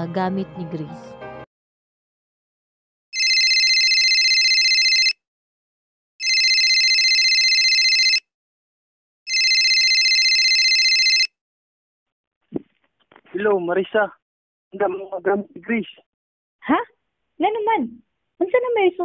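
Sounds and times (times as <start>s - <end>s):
telephone ringing: 3.2s - 5.2s, 6.2s - 8.2s, 9.3s - 11.3s.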